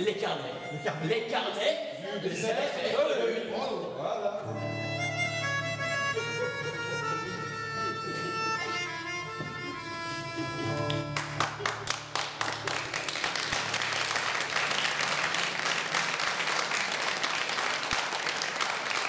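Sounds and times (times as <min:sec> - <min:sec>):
live music held chord: 0:04.4 - 0:16.7
audience applause: 0:10.6 - 0:19.0.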